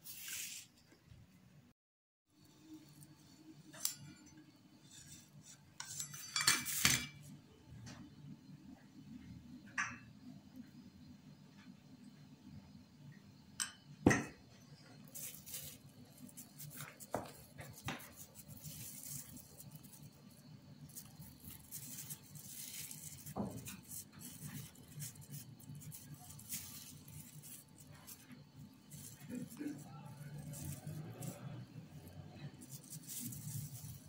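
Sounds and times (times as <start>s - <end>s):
plastic sheeting crinkling: 15.1s - 34.0s.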